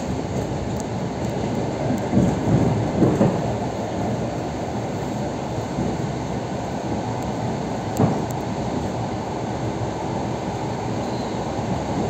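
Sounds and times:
train wheels rumbling on track: 0:00.0 - 0:12.0
train knocking over crossing: 0:01.8 - 0:03.8, 0:07.9 - 0:08.8.

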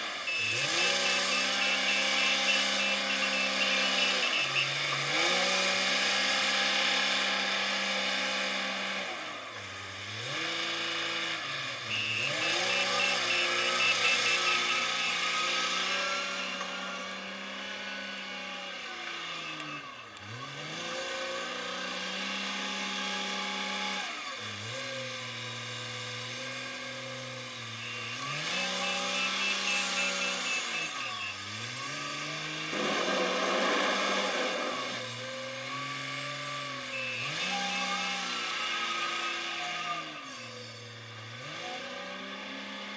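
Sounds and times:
wheel loader diesel engine revving: 0:00.0 - 0:42.9
pulsed reversing alarm: 0:00.2 - 0:05.5, 0:11.8 - 0:18.1, 0:27.4 - 0:38.8.

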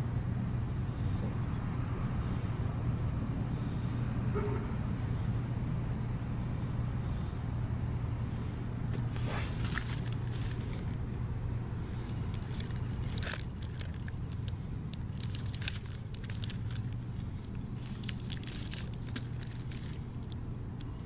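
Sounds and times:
steady low hum: 0:00.0 - 0:21.0
plastic wrap crinkling: 0:09.6 - 0:11.0, 0:12.0 - 0:21.0.

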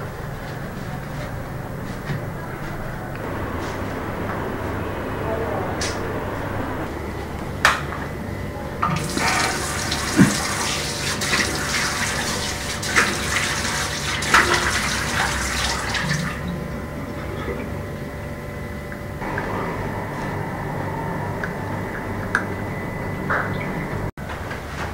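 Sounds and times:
tap water running into washbasin: 0:08.8 - 0:16.6
face washing splashes: 0:09.0 - 0:16.4.

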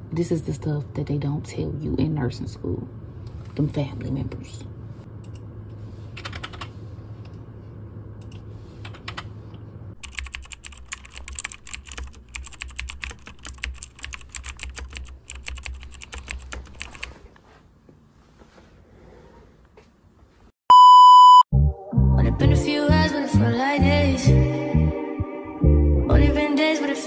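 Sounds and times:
low room hum: 0:00.0 - 0:20.5
typing on keyboard: 0:06.2 - 0:06.7, 0:10.0 - 0:17.2.

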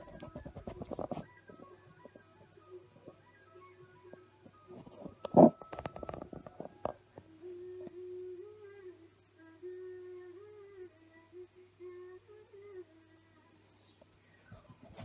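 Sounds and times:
person humming softly: 0:07.2 - 0:14.8.

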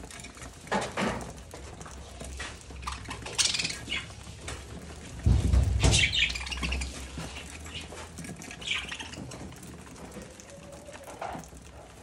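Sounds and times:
birds pecking at seed: 0:00.0 - 0:12.0
budgerigars chirping: 0:03.2 - 0:04.1, 0:05.8 - 0:09.3
low rumbling thump: 0:05.2 - 0:06.2.

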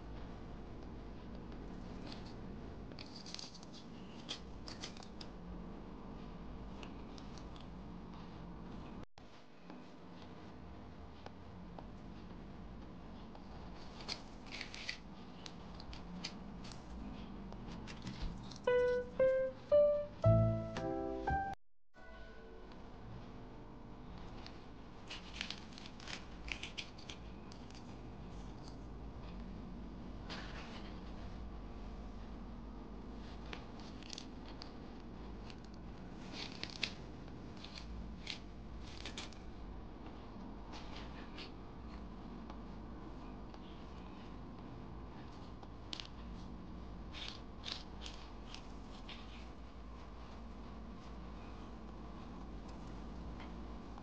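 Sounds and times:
keyboard music with bass: 0:18.7 - 0:22.1.

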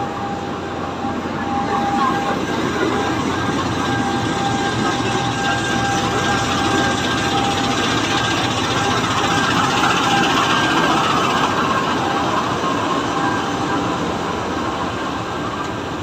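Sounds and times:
train rumbling along track: 0:00.0 - 0:16.0.

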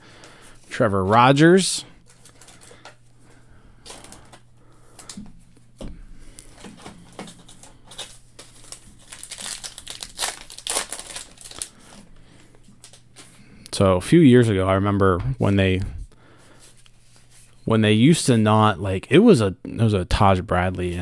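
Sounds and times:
faint steady hum: 0:00.0 - 0:21.0
paper wrapper crinkling: 0:02.0 - 0:03.0, 0:03.8 - 0:05.2, 0:06.4 - 0:12.1
paper wrapper tearing: 0:07.2 - 0:12.0.

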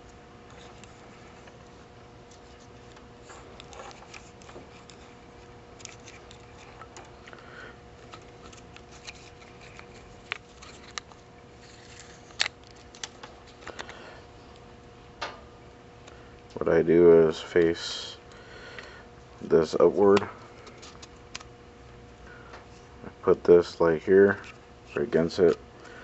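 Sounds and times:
wires and plastic parts handled: 0:00.0 - 0:14.7, 0:19.7 - 0:21.5, 0:23.6 - 0:25.9
faint steady hum: 0:00.0 - 0:26.0.

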